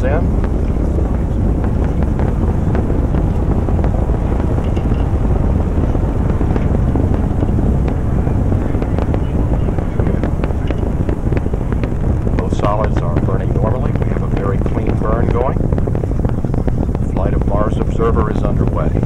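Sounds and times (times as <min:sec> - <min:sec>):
rocket launch roar with crackles: 0:00.0 - 0:19.0.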